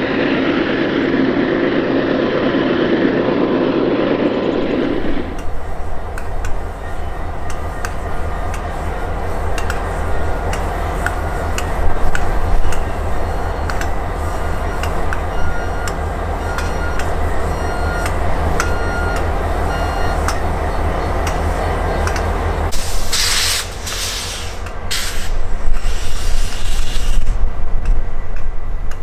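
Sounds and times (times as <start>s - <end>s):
diesel engine hum: 0.0s - 29.0s
locomotive rumble: 0.0s - 29.0s
wheels clicking and squeaking on rail: 4.4s - 29.0s.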